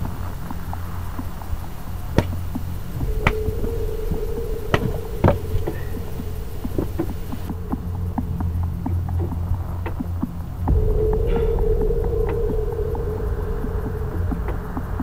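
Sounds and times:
low machine hum: 0.0 - 15.0
steady whine: 0.0 - 15.0
sharp knocks: 2.2 - 3.8, 4.6 - 7.5.

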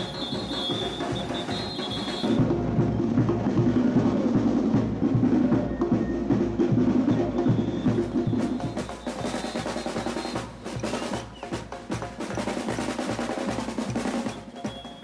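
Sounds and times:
snare and bass drums: 0.0 - 15.0.

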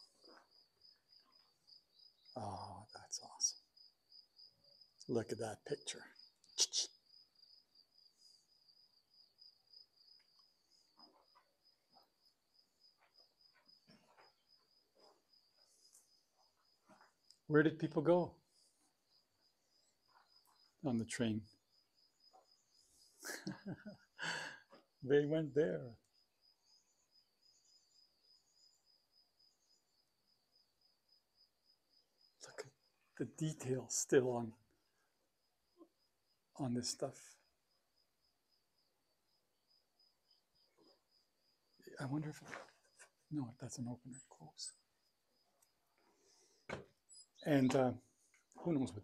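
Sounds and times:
cricket trilling: 0.0 - 49.0
faint insect chirping: 0.0 - 49.0
faint knocks: 46.6 - 47.0.

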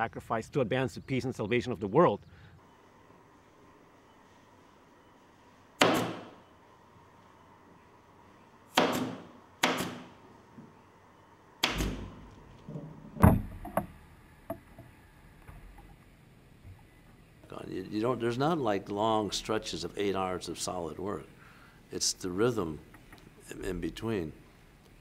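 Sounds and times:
pneumatic nail gun shots: 5.8 - 6.4, 8.8 - 10.2, 11.6 - 12.2.

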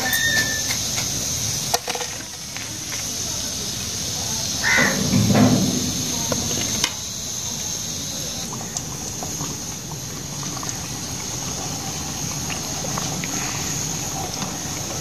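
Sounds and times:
hot oil sizzling: 0.0 - 15.0
oil crackles: 0.0 - 15.0.

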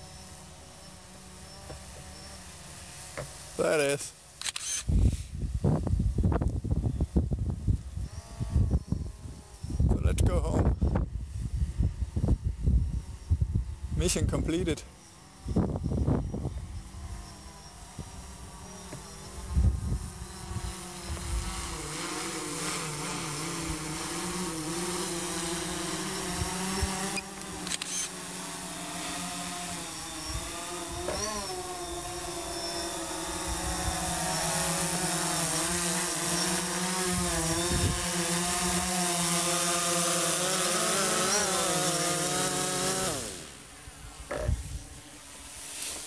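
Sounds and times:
drone motors and propellers whining: 0.0 - 46.0.

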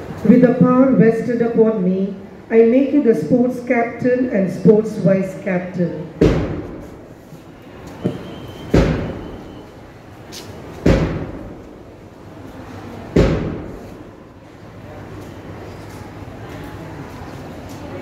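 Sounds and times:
heavy ringing thuds: 8.1 - 9.6.

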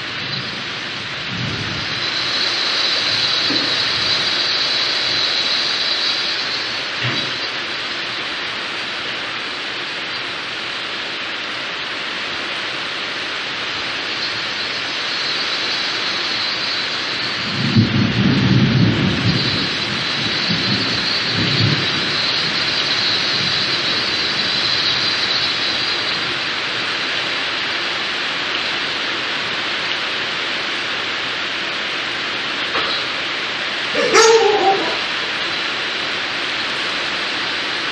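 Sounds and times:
steady rain falling: 0.0 - 37.9
low rumble of thunder: 17.4 - 25.1.

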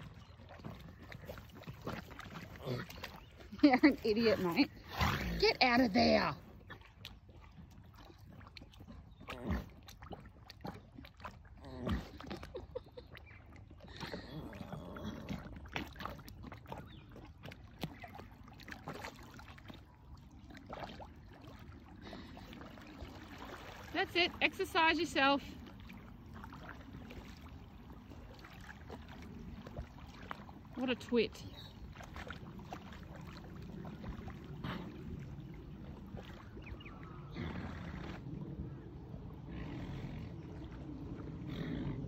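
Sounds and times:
water sloshing and splashing: 0.0 - 42.0
water dripping: 5.4 - 22.0.

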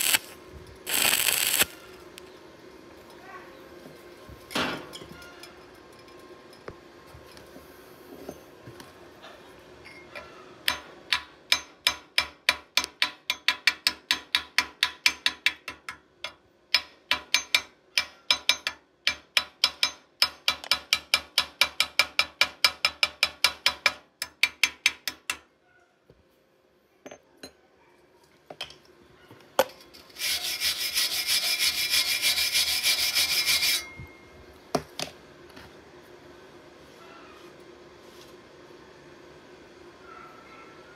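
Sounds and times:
wire brush scrubbing metal: 0.0 - 1.9, 30.1 - 34.0
metal tapping on weld slag: 10.6 - 25.5.

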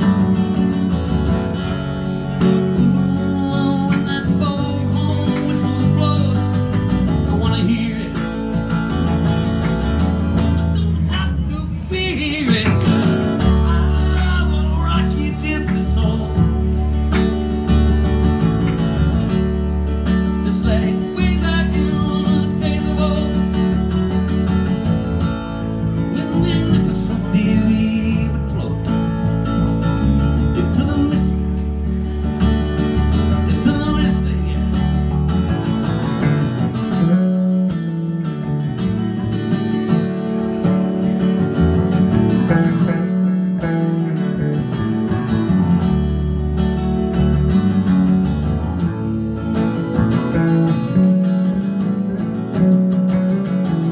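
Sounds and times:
electric bass notes: 0.0 - 53.9
strummed acoustic guitar: 0.0 - 53.9
man singing: 2.3 - 8.7, 10.7 - 17.3, 20.1 - 23.9, 26.0 - 31.9, 33.2 - 35.6.

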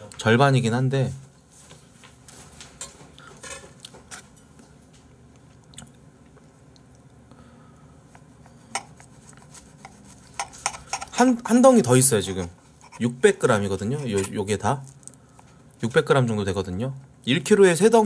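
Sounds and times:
person chewing: 5.2 - 7.3, 8.1 - 11.2, 14.0 - 15.7
cutlery clicking on a plate: 10.3 - 11.2.

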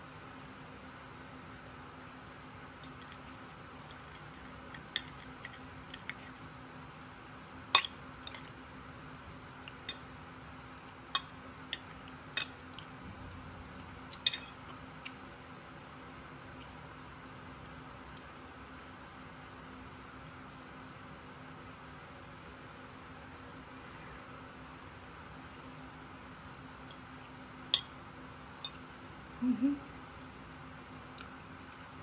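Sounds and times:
fork clinking on ceramic plate: 7.8 - 8.5.

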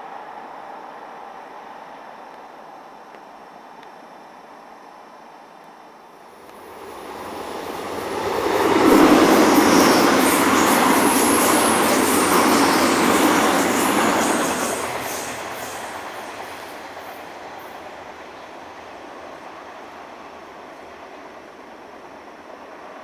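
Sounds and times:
train wheels rumbling on rail: 6.4 - 23.0.

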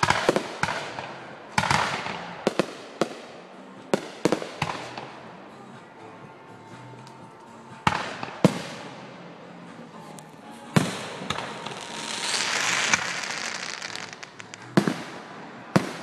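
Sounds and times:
fireworks bursting with bangs: 0.0 - 5.3, 7.8 - 9.2, 10.6 - 16.0
fireworks crackling: 0.0 - 5.6, 6.9 - 16.0.

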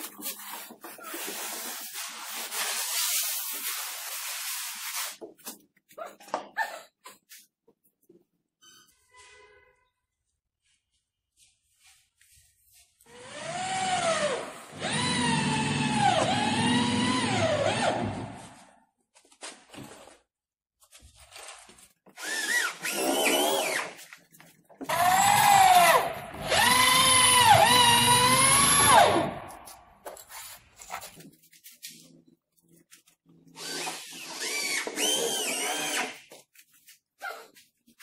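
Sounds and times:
electric drill drilling into wood: 13.2 - 18.3, 22.2 - 23.9, 24.9 - 29.6, 33.6 - 36.2.

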